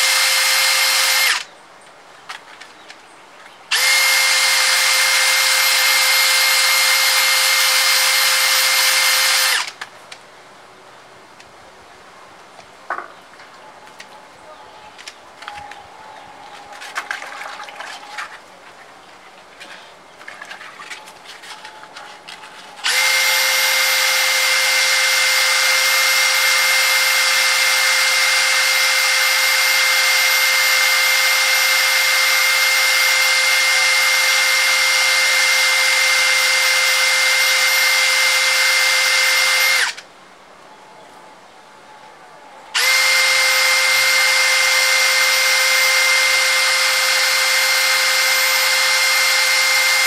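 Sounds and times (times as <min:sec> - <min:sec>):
cordless drill whining: 0:00.0 - 0:01.5, 0:03.7 - 0:09.8, 0:22.2 - 0:40.0, 0:42.8 - 0:50.0.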